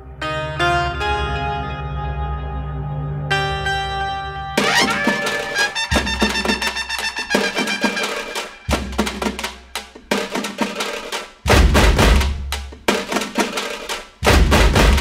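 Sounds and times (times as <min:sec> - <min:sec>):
music with drums and percussion: 0:04.6 - 0:15.0.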